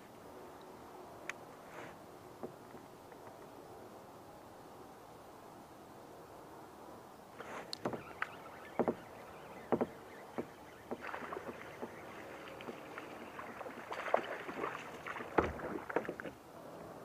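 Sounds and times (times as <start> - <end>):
knocks and clicks of gear: 7.6 - 9.1, 9.7 - 11.0
fish thrashing and splashing: 9.8 - 16.4.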